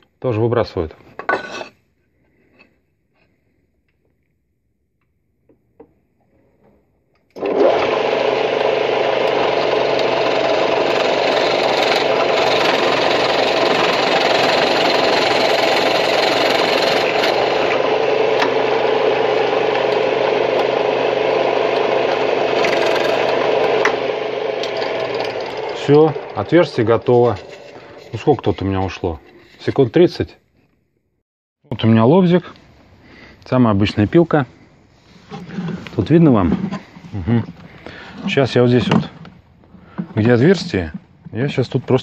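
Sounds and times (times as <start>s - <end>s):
drill press boring wood: 7.4s - 28.1s.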